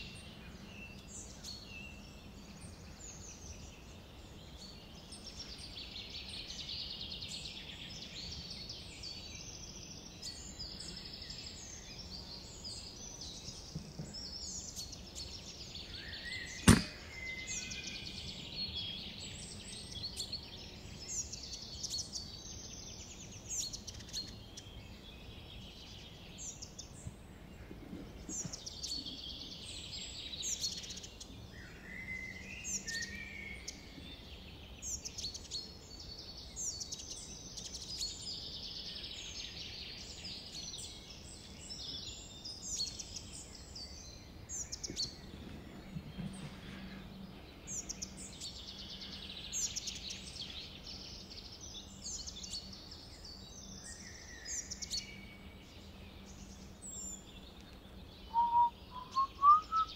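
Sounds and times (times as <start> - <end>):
small birds chirping: 0.0 - 59.9
air rifle shot: 16.7 - 17.3.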